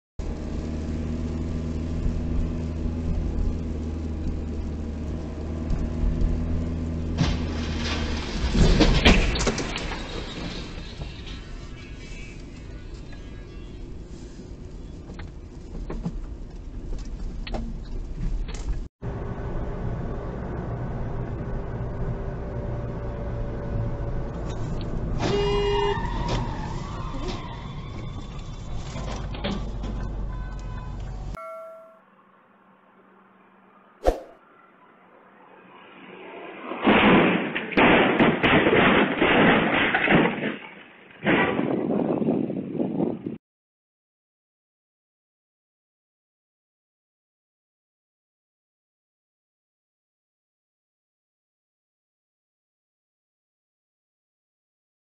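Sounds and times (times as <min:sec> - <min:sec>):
car engine and tyre noise: 0:00.2 - 0:31.4, 0:32.1 - 0:37.9
road noise: 0:00.2 - 0:38.0
short loud tone: 0:31.4 - 0:32.3.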